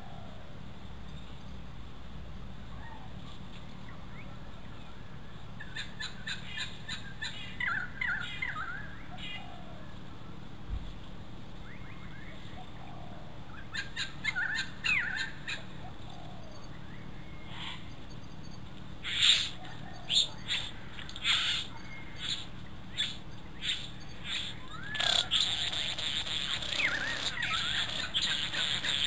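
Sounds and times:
bird calling clicks and whistles: 19.1s - 29.0s.

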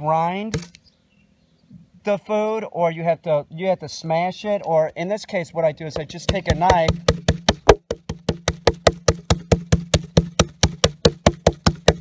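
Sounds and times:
knife chopping on wooden board: 6.0s - 12.0s.

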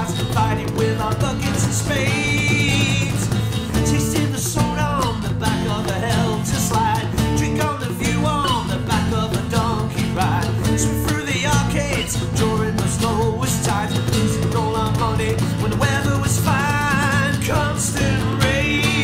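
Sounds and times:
bass and drum beat: 0.0s - 19.0s
guitars playing: 0.0s - 19.0s.

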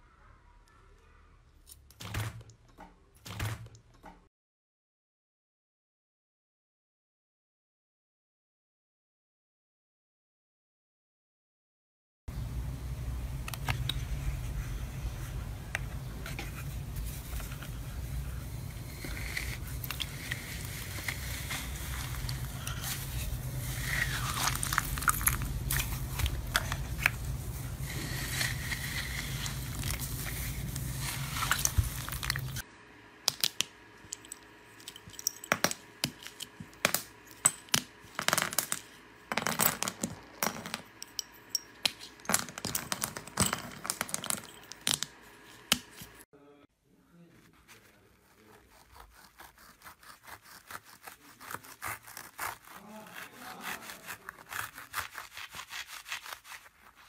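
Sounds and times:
steady low hum: 12.3s - 39.3s
slime handling noises: 13.6s - 32.6s
chalk sticks cracking: 18.7s - 32.6s.

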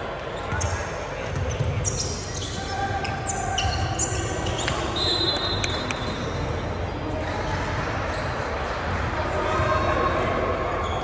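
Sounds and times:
voices echoing in hall: 0.0s - 11.0s
high shoe squeak: 0.4s - 6.8s
basketball bouncing on wooden court: 0.5s - 2.1s.

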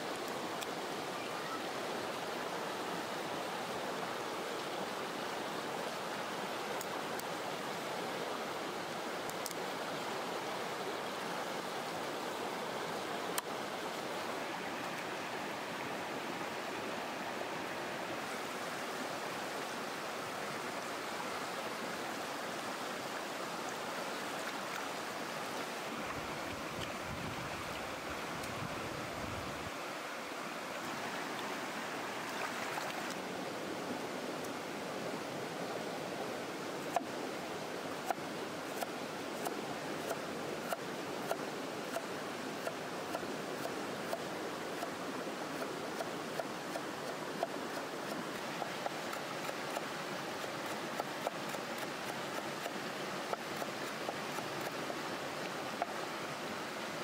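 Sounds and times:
stream water flowing: 0.0s - 57.0s.

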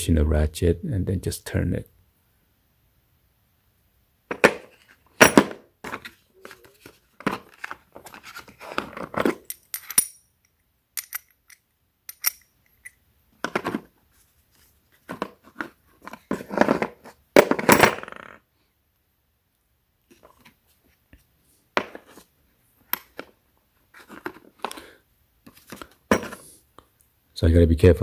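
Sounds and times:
steel parts clinking: 9.4s - 13.0s.

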